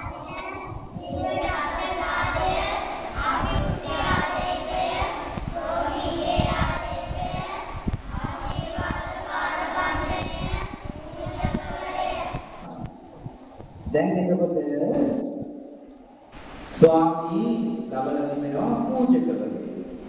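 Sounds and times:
children singing a hymn: 0:00.0 - 0:12.7.

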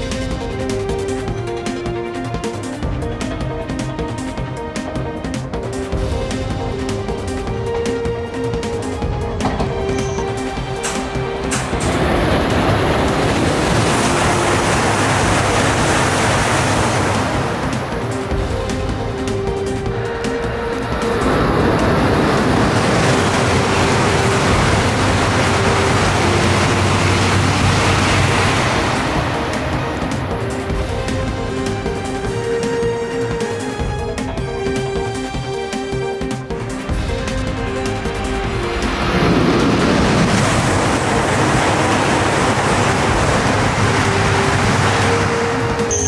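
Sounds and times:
high-speed train passing: 0:00.0 - 0:46.0.

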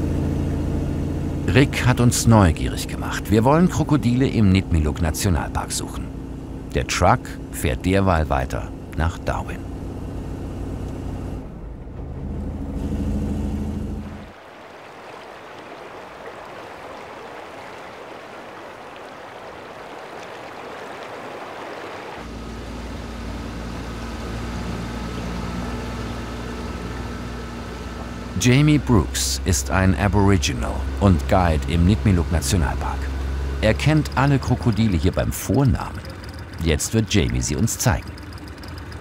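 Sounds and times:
truck engine hum: 0:00.0 - 0:14.4, 0:21.3 - 0:39.0
motor drone with whine: 0:22.2 - 0:39.0.

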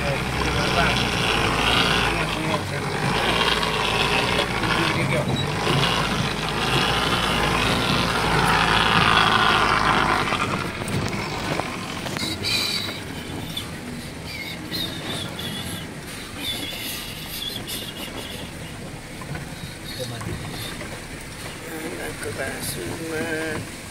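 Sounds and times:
truck body rattling: 0:00.0 - 0:23.9
truck engine rumbling: 0:00.0 - 0:23.9
short high squeaks: 0:03.1 - 0:10.6, 0:11.2 - 0:18.8.

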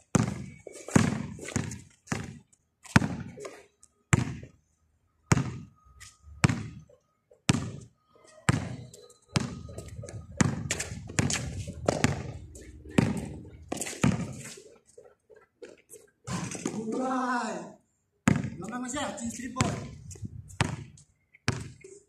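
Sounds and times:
basketball bouncing on concrete: 0:00.0 - 0:04.6, 0:05.3 - 0:05.7, 0:06.4 - 0:07.9, 0:08.5 - 0:14.6, 0:18.2 - 0:18.7, 0:19.4 - 0:21.9.

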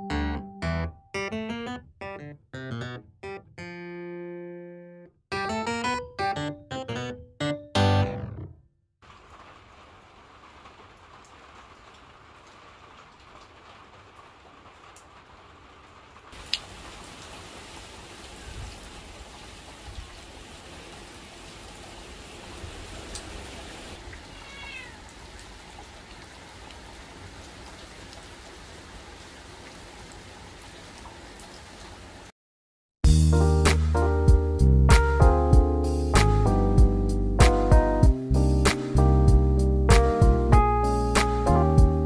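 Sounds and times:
rain heard through a window: 0:09.0 - 0:32.3
rain pattering on stone and puddles: 0:09.0 - 0:32.3.

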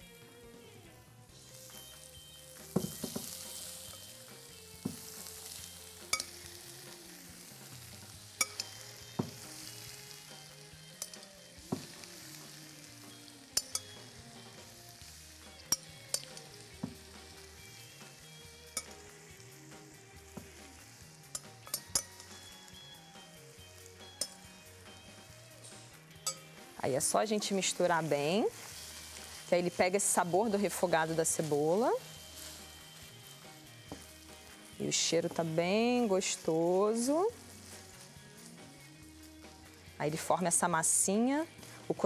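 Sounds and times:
onions sizzling in a frying pan: 0:00.0 - 0:42.0
clinks against pan and bowl: 0:06.1 - 0:06.3, 0:08.4 - 0:09.3, 0:11.0 - 0:11.3, 0:13.6 - 0:14.0, 0:15.6 - 0:16.5, 0:21.3 - 0:22.3, 0:26.2 - 0:26.5.

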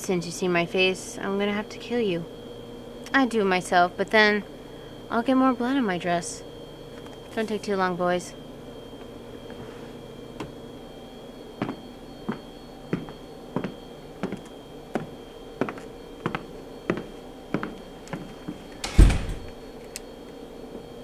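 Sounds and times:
heeled footsteps on hard floor: 0:11.6 - 0:18.6.

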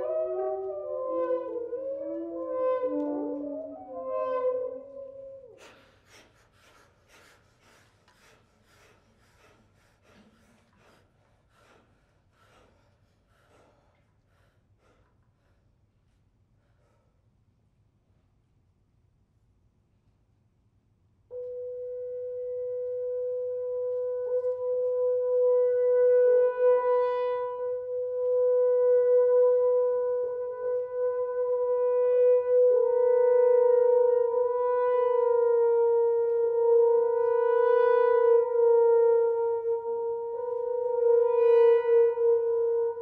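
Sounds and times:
wind instruments holding long notes: 0:00.0 - 0:10.8, 0:21.3 - 0:43.0.

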